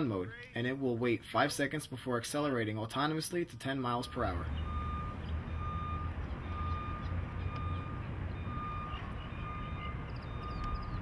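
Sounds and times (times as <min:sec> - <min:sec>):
warning beeper beeping: 0:03.9 - 0:11.0.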